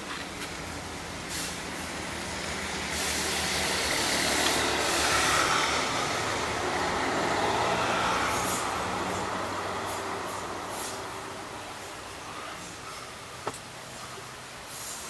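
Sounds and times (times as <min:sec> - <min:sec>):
vehicle passing: 0:02.0 - 0:13.0.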